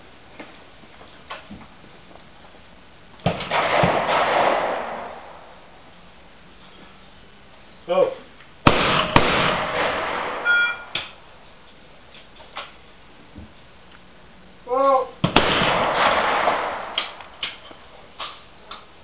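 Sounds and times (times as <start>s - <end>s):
shotgun shot with echo: 3.2s - 5.5s, 8.7s - 11.2s, 15.2s - 17.2s
sharp cracks: 3.2s - 5.8s, 8.6s - 11.4s, 15.2s - 18.9s
person shouting: 14.6s - 15.2s.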